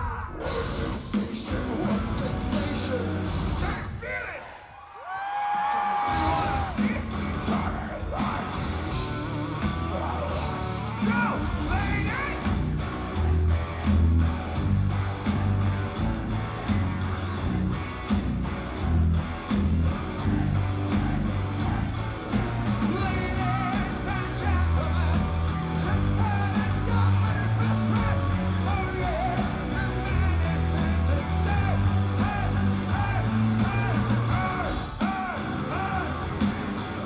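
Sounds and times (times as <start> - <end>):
man singing: 0.0 - 4.2, 6.0 - 9.0, 9.8 - 12.5, 22.8 - 36.3
metal band playing live: 0.0 - 4.2, 5.8 - 37.0.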